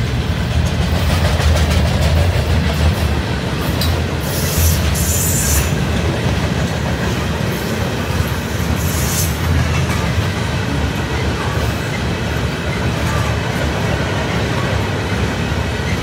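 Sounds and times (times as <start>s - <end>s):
freight train wheels rumbling: 0.0s - 16.0s.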